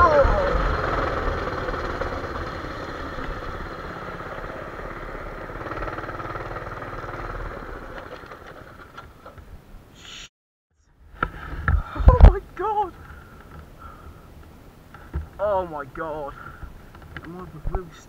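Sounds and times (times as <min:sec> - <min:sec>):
small engine running: 0:00.0 - 0:09.2.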